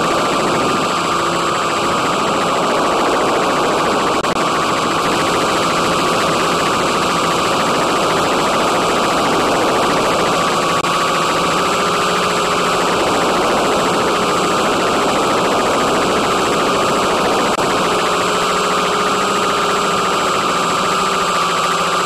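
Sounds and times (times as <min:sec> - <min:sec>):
radio static hiss: 0:00.0 - 0:18.1
electric motors and propellers whining: 0:00.0 - 0:22.0.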